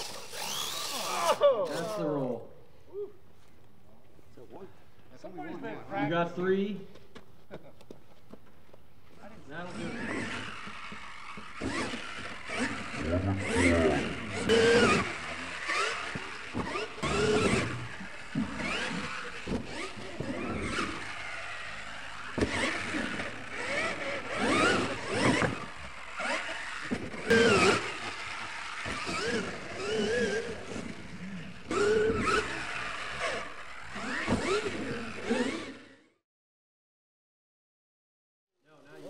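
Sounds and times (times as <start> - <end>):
toy truck motor whining: 0.0 - 2.3, 9.6 - 36.2.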